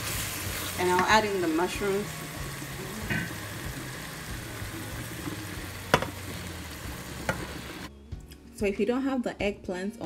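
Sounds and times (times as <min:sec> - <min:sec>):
stew sizzling and simmering: 0:00.0 - 0:07.9
sharp knock in pan: 0:05.9 - 0:06.2.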